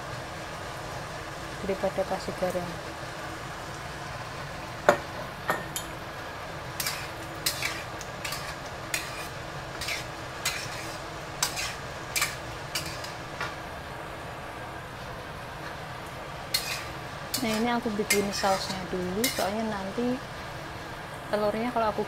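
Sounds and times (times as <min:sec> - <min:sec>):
metal spatula scraping a wok: 0:06.8 - 0:13.3, 0:16.5 - 0:19.6.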